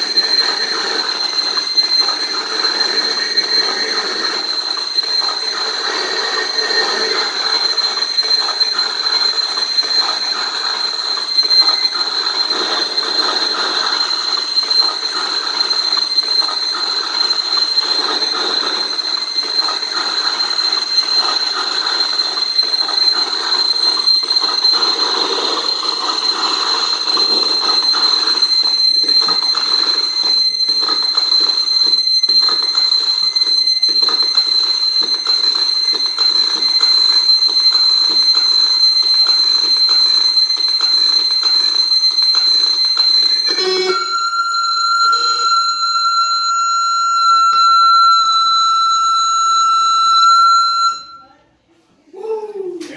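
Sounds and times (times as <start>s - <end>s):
high-pitched whine: 0.0s - 36.7s.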